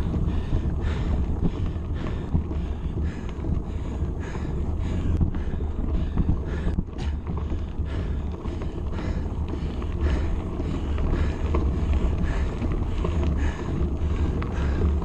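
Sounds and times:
bike clicks and creaks: 0.0 - 15.0
bike tyres on loose stones: 0.0 - 15.0
wind buffeting microphone: 0.0 - 15.0.

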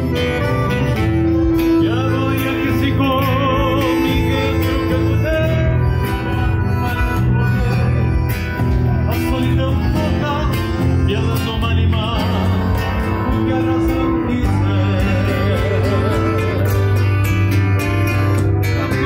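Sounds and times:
electric bass: 0.0 - 19.0
nylon-string acoustic guitar: 0.0 - 19.0
piano accordion: 0.0 - 19.0
man singing wavering notes: 8.9 - 17.0.

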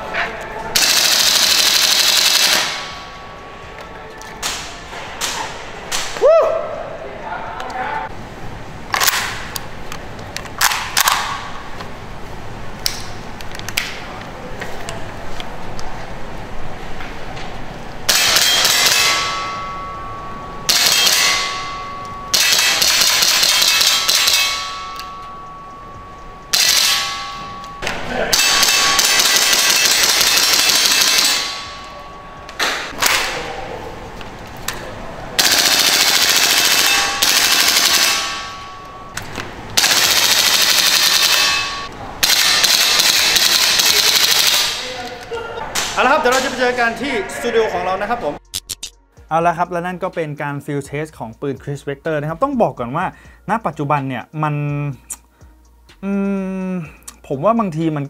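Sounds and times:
airsoft gun firing bursts: 0.8 - 2.8, 22.3 - 24.5, 28.4 - 31.5, 35.4 - 38.3, 39.8 - 41.5, 42.2 - 44.8
metallic ringing tone: 18.2 - 33.0, 36.0 - 39.2, 40.4 - 42.0.

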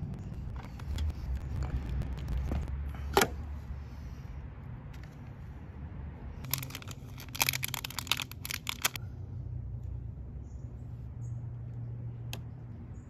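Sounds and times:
small plastic clicks and rattles: 6.5 - 9.0.

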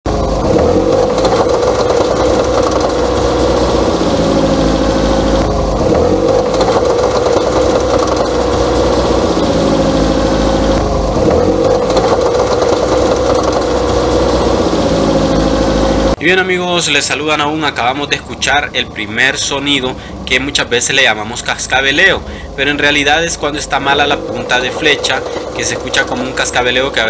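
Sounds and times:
car engine pulling: 0.0 - 27.0
clacking from front wheel: 0.6 - 3.0, 6.2 - 8.4, 11.3 - 13.8, 24.2 - 26.9.

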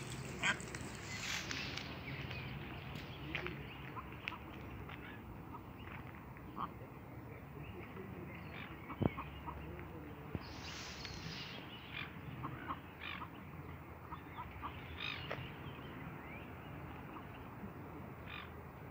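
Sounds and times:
rustling hiss: 0.0 - 3.2, 10.3 - 11.9.

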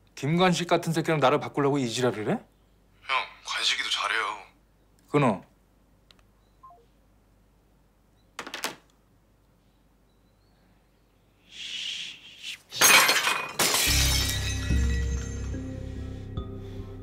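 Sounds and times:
ceramic smashing on hard floor: 12.8 - 15.5.

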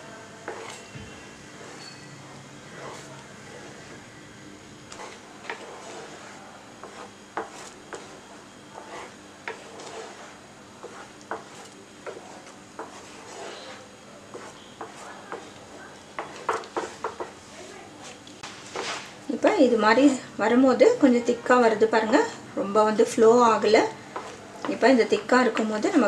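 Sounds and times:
spatula scraping pudding in pan: 0.4 - 4.0, 4.9 - 15.6, 16.2 - 17.4, 18.0 - 19.1, 24.1 - 24.8.

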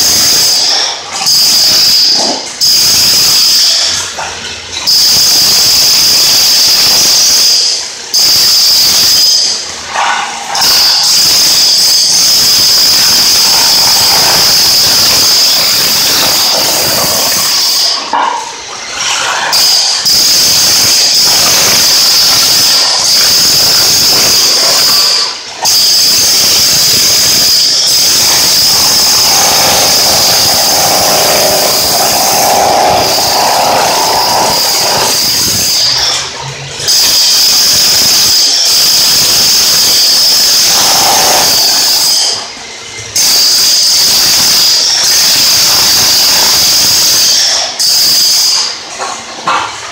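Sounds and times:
demolition hammer chipping tile: 10.6 - 18.3, 19.0 - 36.3, 40.0 - 41.7.

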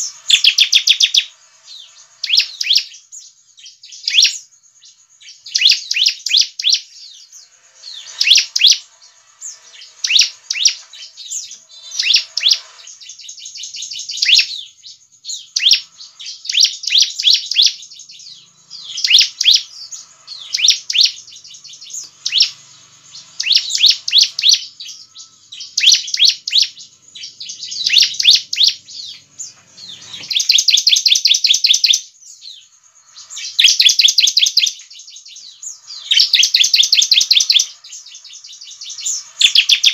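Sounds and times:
bird high chirps and trill: 0.0 - 39.9.

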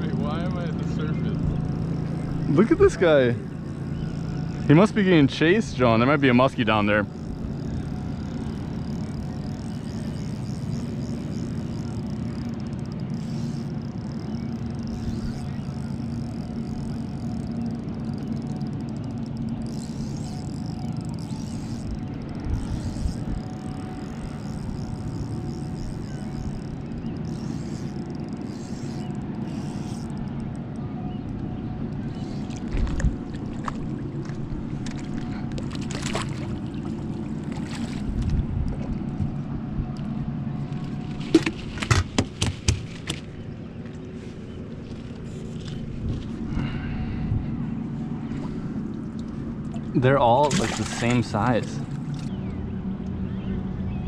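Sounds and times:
outboard motor running: 0.0 - 54.0
knocks and rattles in boat: 32.5 - 39.4, 40.8 - 44.0.

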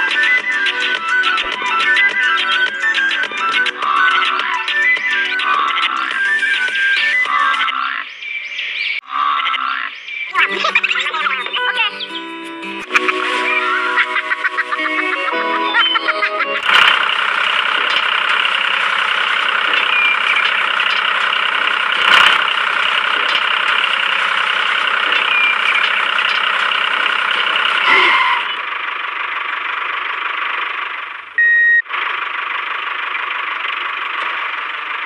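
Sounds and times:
tractor engine running: 0.0 - 8.9, 10.3 - 35.0
short high beep: 31.4 - 31.8.

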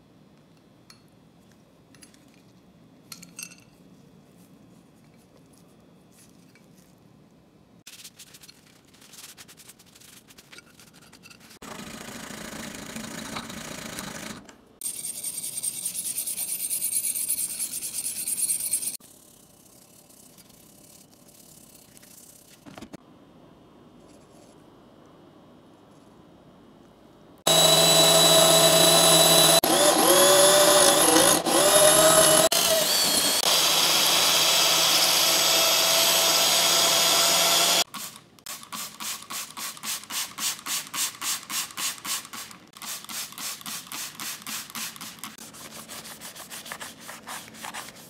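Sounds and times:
paper towel wiping metal blade: 42.9 - 48.0.

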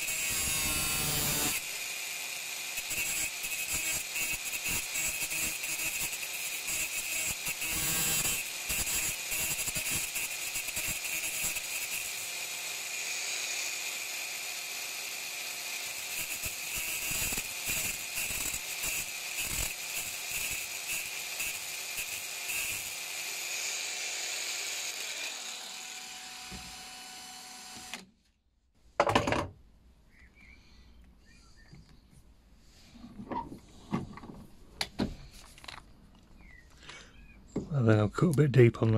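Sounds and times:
angle grinder grinding steel: 0.0 - 28.0.

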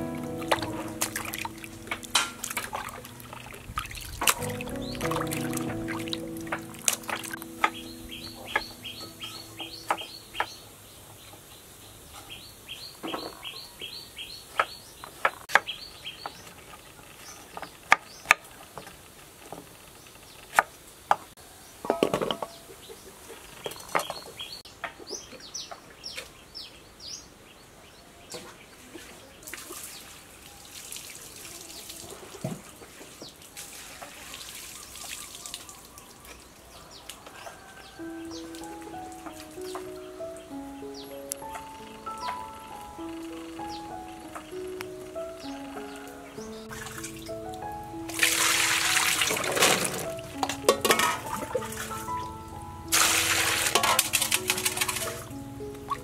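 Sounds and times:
running water: 0.0 - 11.7, 28.7 - 40.6, 41.3 - 56.0
bird chirping: 0.0 - 18.3, 34.7 - 48.0.

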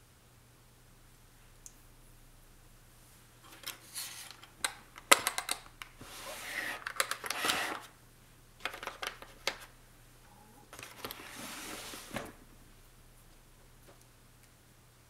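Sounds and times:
drawer sliding open and shut: 6.0 - 7.9, 11.0 - 12.4.

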